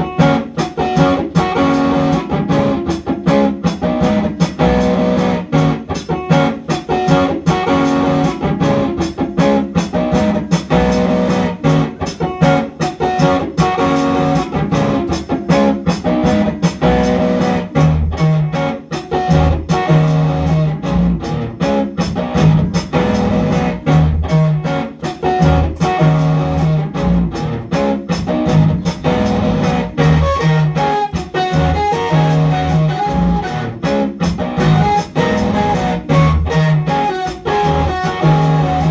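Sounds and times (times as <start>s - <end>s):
electric guitar picked notes: 0.0s - 38.9s
pulsing bass notes: 13.2s - 15.2s, 16.1s - 18.5s, 19.3s - 24.8s, 25.4s - 38.9s.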